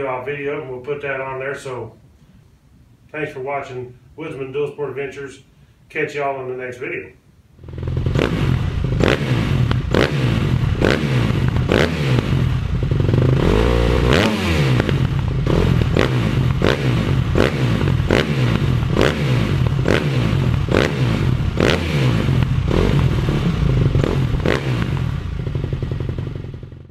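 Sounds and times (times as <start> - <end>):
motorcycle engine revving: 7.6 - 26.9
sharp cracks: 8.0 - 25.6.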